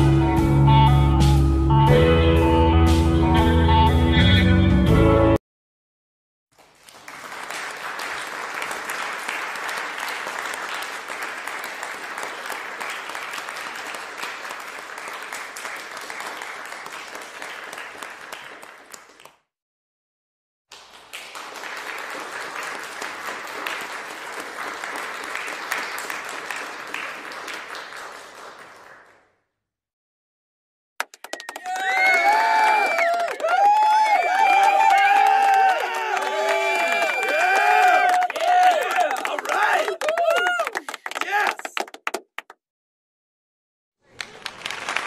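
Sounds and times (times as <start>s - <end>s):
crowd applauding: 6.6s - 19.4s, 20.7s - 29.4s, 31.0s - 42.6s, 44.1s - 45.0s.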